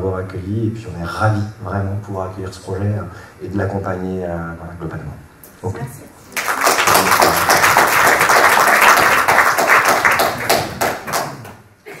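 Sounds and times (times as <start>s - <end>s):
audience applauding: 6.4s - 11.6s.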